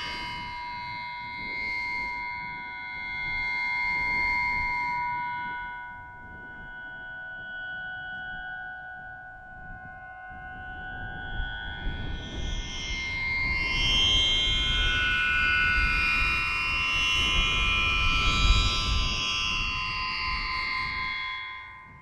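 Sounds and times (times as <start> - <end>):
wind harp strings humming: 0.0 - 22.0.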